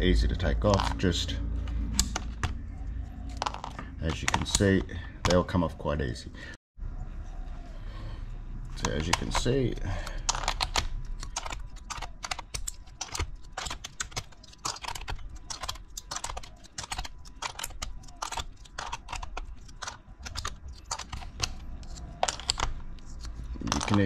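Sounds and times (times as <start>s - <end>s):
keycaps popping off keyboard: 8.8s - 24.0s.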